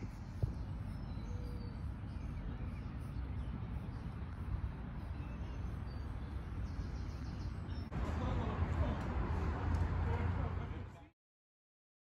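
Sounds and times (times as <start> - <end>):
faint bird chirps: 0.0 - 4.2
steady low rumble: 0.0 - 10.8.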